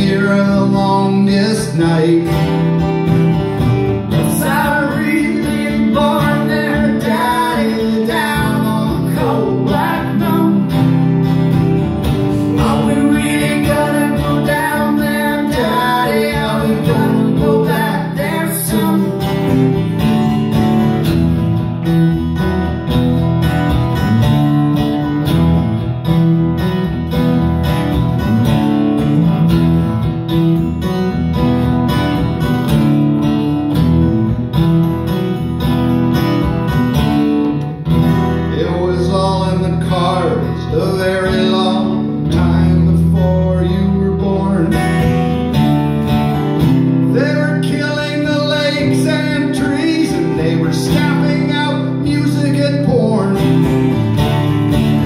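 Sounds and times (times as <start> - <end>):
person singing: 0.0 - 2.7, 4.1 - 11.2, 12.1 - 20.5, 38.4 - 45.2, 47.1 - 53.6
acoustic guitars playing: 0.0 - 55.0.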